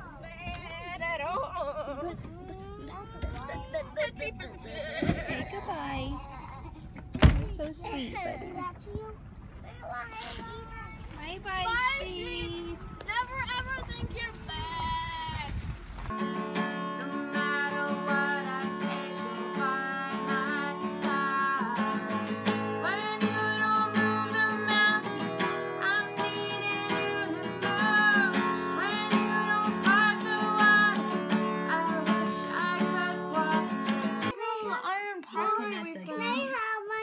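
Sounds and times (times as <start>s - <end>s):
acoustic guitar strumming: 16.1s - 34.4s
woman singing: 16.9s - 34.3s.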